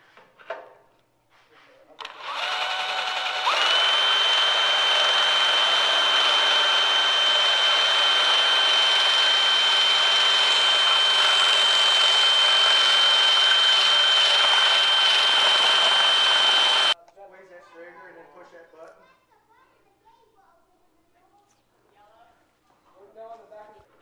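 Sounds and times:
cordless drill motor whine: 0:02.0 - 0:17.0
drill bit grinding steel: 0:02.0 - 0:17.0.

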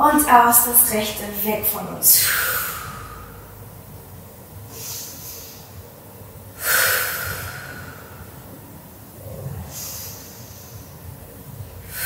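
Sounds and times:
woman breathing deeply: 0:02.2 - 0:03.8, 0:04.7 - 0:12.0.

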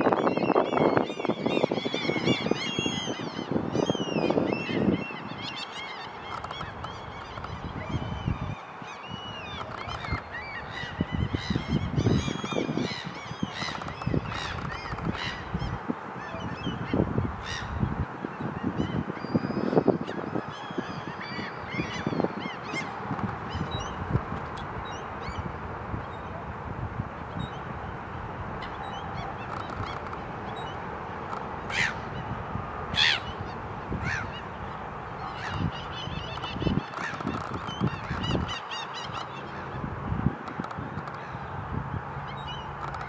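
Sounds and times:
birds chirping and whistling: 0:00.0 - 0:15.8, 0:35.3 - 0:39.4
birds honking: 0:31.6 - 0:39.9.

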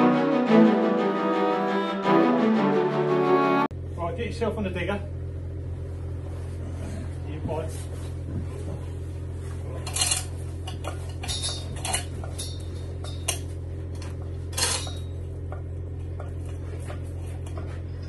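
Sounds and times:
steady low hum: 0:03.6 - 0:18.0
steel chain clinking and rattling: 0:09.9 - 0:13.4.

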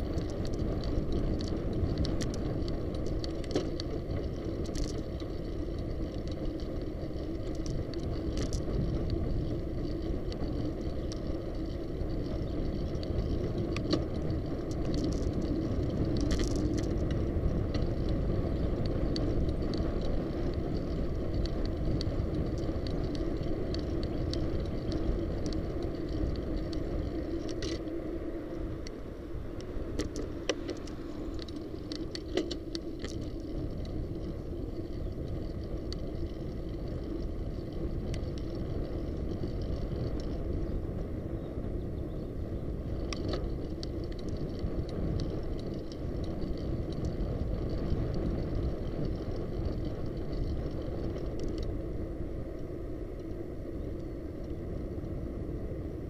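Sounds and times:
light clicks and rattles: 0:00.0 - 0:28.0, 0:29.6 - 0:40.6
road rumble: 0:00.0 - 0:56.0
wind on microphone: 0:00.0 - 0:56.0.

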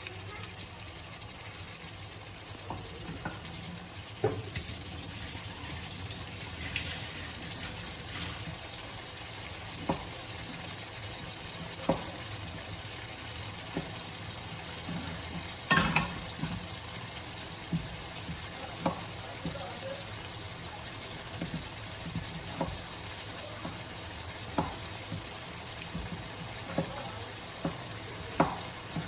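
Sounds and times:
chicken sizzling in a hot pan: 0:00.0 - 0:29.0.

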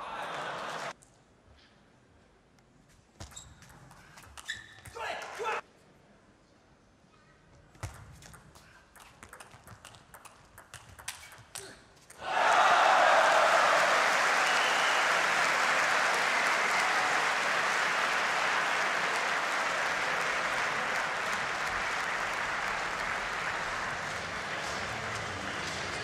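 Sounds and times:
crowd applauding: 0:00.0 - 0:00.9, 0:12.2 - 0:26.0.

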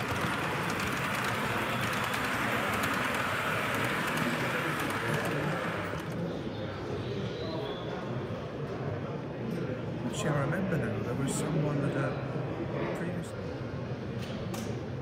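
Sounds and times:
model train rushing past: 0:00.0 - 0:06.3.

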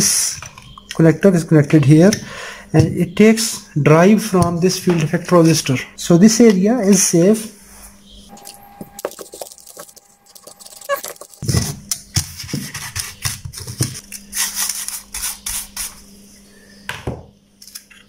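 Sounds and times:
brush scrubbing circuit board: 0:08.5 - 0:11.4.

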